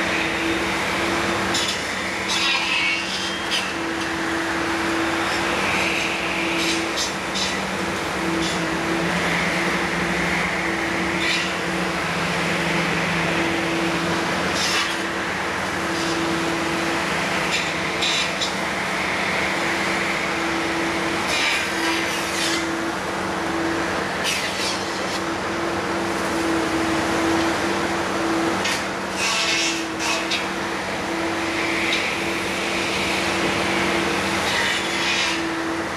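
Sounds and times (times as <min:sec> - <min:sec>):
engine low hum: 0:00.0 - 0:02.4, 0:03.1 - 0:29.2
saw crackling through branches: 0:00.0 - 0:25.5.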